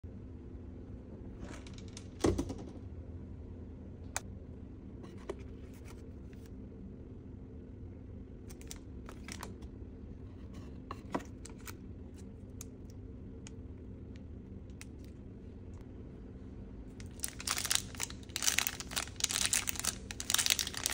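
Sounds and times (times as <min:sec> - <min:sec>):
steady low hum: 0:00.0 - 0:20.9
cellophane crinkling: 0:08.5 - 0:09.6, 0:17.0 - 0:20.9.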